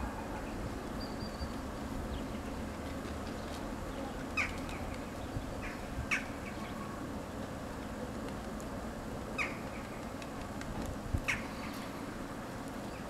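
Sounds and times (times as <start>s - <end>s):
crows calling: 5.6s - 6.8s, 9.4s - 9.8s, 11.3s - 11.8s.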